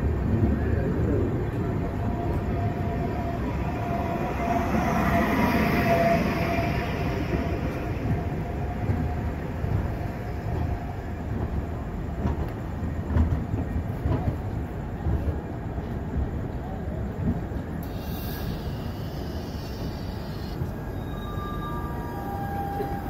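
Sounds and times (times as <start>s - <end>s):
train rumbling: 0.0s - 23.0s
faint whine: 17.8s - 23.0s.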